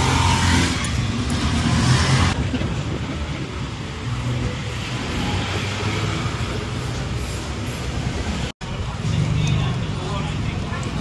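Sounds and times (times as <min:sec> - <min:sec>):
road noise: 0:00.0 - 0:11.0
rush of traffic noise: 0:00.0 - 0:11.0.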